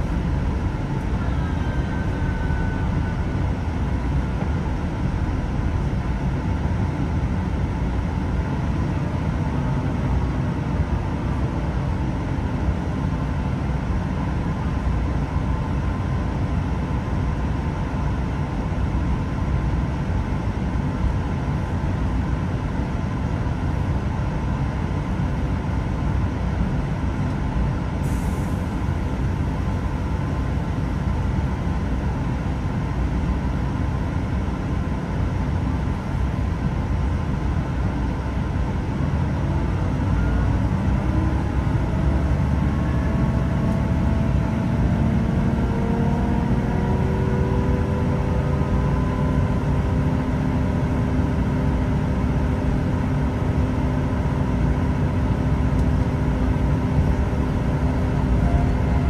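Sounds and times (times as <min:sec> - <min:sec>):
train engine rumble: 0:00.0 - 0:59.0
whining tones rising in pitch: 0:58.2 - 0:59.0.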